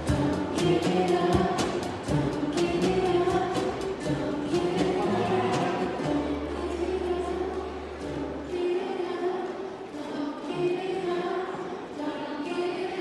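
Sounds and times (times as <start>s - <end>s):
children singing pop song: 0.0s - 13.0s.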